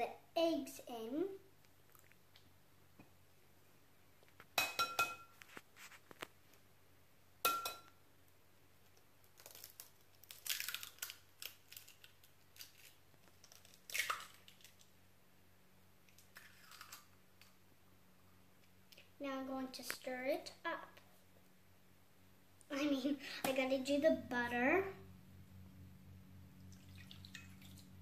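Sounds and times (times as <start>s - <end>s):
eggshells crackling: 9.2s - 14.9s.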